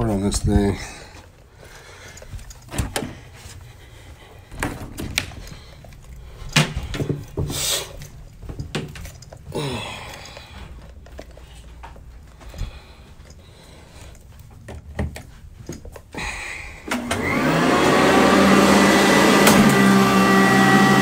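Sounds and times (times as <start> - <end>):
knocks and thumps of vacuum handling: 14.6 - 15.8, 19.1 - 20.0.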